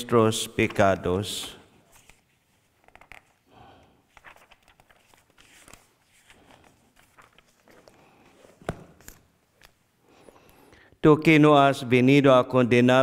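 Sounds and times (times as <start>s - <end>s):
paper pages rustling: 0.5s - 3.4s, 4.0s - 9.8s
soft ticks of pages turning: 1.9s - 3.4s, 4.1s - 8.1s.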